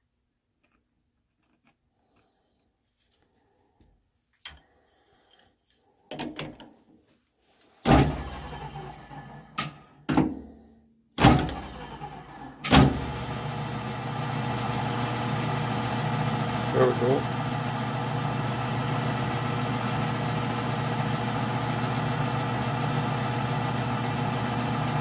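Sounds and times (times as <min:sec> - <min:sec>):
lathe motor humming: 0:11.5 - 0:25.0.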